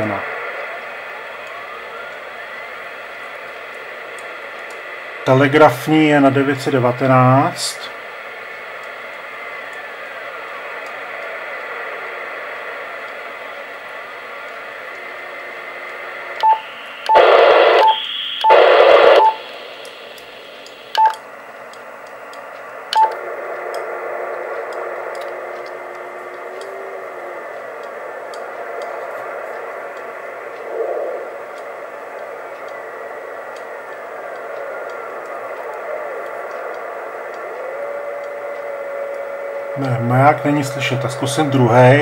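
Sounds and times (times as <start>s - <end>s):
loud static blasts: 0.0s - 42.0s
radio static hiss: 0.0s - 42.0s
short radio control beeps: 16.4s - 21.2s, 22.9s - 23.2s.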